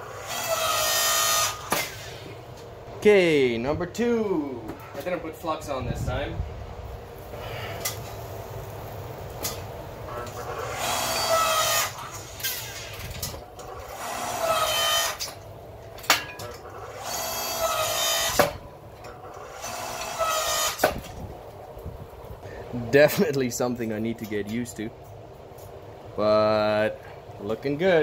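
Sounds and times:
hydraulic pump motor whining: 0:00.0 - 0:02.3, 0:10.1 - 0:15.4, 0:16.6 - 0:18.6, 0:19.2 - 0:21.1.

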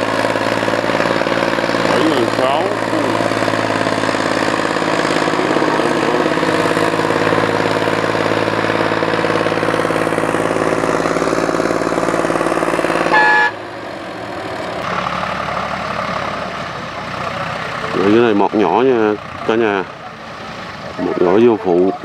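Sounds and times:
tractor engines running: 0:00.0 - 0:22.0
short high beep: 0:13.1 - 0:13.6.

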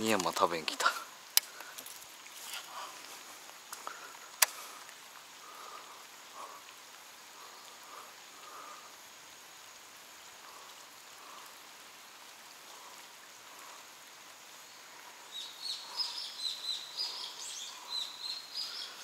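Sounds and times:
outdoor background hiss: 0:00.0 - 0:19.0
small bird singing: 0:15.2 - 0:19.0.

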